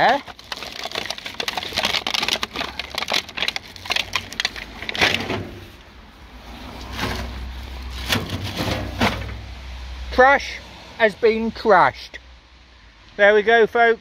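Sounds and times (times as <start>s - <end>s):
plastic bag crinkling: 0.0s - 5.8s.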